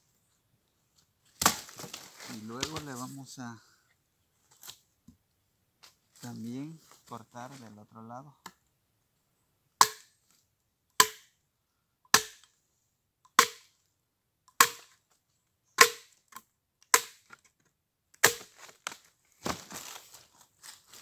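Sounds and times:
machete chopping wood: 1.4s - 2.0s, 2.6s - 2.9s, 9.8s - 10.2s, 11.0s - 11.4s, 12.1s - 12.5s, 13.3s - 13.7s, 14.5s - 15.0s, 15.8s - 17.4s, 18.2s - 19.6s.

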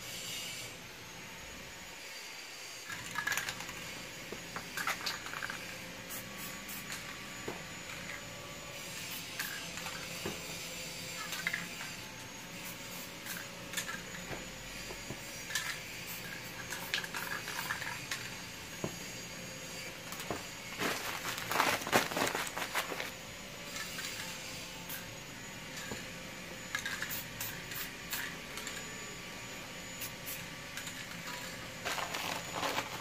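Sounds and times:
crumpled sheet crinkling: 20.3s - 23.2s, 31.8s - 33.0s.

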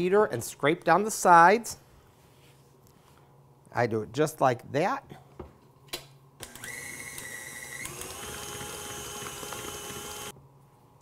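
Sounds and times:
stand mixer motor whine: 6.4s - 10.3s.

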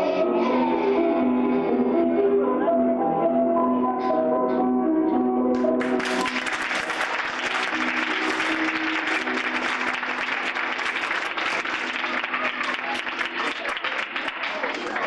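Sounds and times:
audience applauding: 5.8s - 15.0s.

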